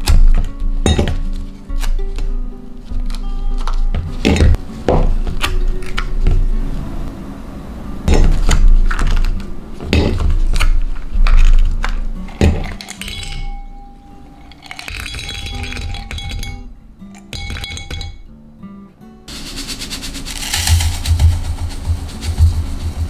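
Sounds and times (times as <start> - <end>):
soft background music: 0.0 - 23.0
ice cubes clicking and clinking: 11.3 - 13.5, 14.4 - 16.6.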